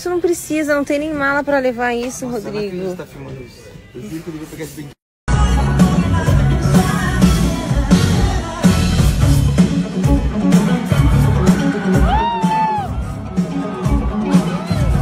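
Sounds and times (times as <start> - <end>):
live band with drums and guitar: 5.3 - 15.0.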